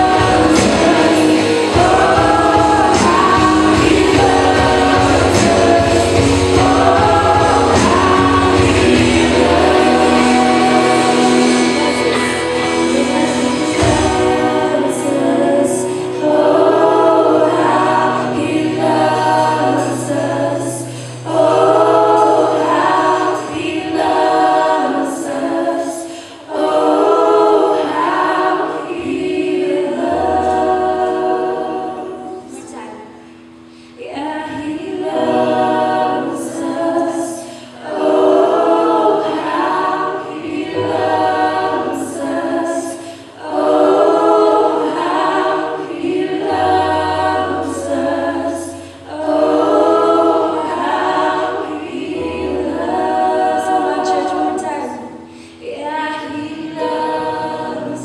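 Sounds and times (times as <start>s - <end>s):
voices singing together: 0.0s - 58.0s.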